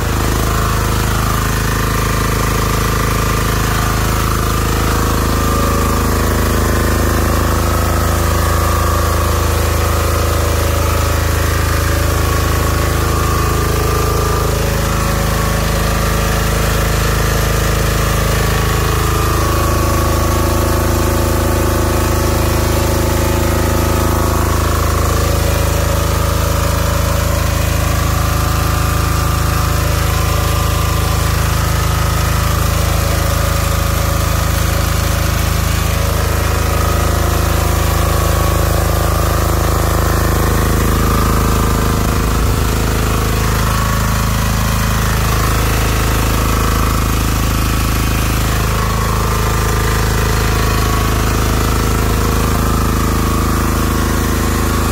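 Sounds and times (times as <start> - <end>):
diesel generator running: 0.0 - 54.9.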